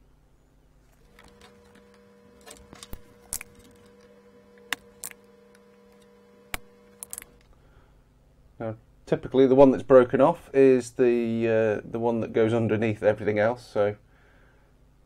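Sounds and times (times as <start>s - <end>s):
faint steady hum: 0.0s - 15.0s
circuit board being handled: 0.8s - 7.6s
desoldering pump clicks and snaps: 1.1s - 7.5s.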